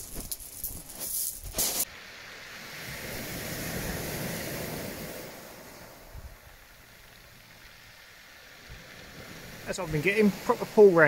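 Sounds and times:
pebbles rustling and knocking: 0.0s - 1.9s
wave washing on shingle: 8.6s - 11.0s.

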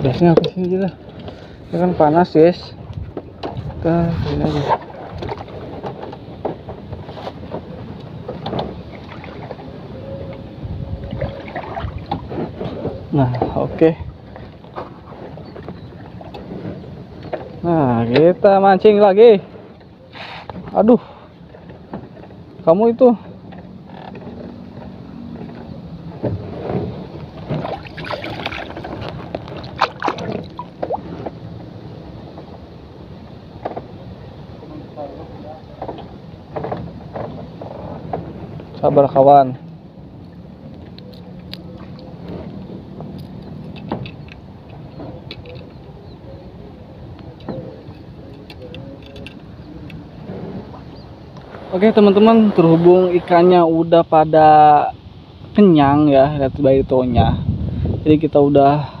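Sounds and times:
wind buffeting microphone: 0.0s - 59.0s
short scraping noises: 20.1s - 20.7s, 51.4s - 53.5s.

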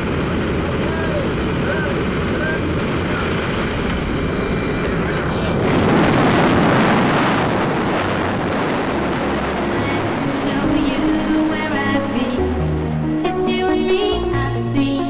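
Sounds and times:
rush of wind: 0.0s - 13.2s
aircraft engine noise: 0.0s - 14.4s
music: 8.0s - 15.0s.

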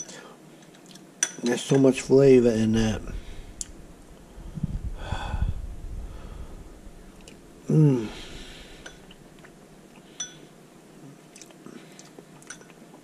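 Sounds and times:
man eating: 6.3s - 13.0s
man humming mm: 7.6s - 8.7s
metal spoon clinking on glass: 10.2s - 10.5s.

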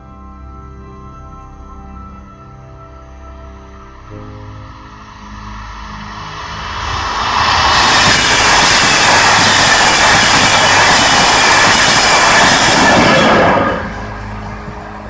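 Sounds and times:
train passing at speed: 4.3s - 15.0s.

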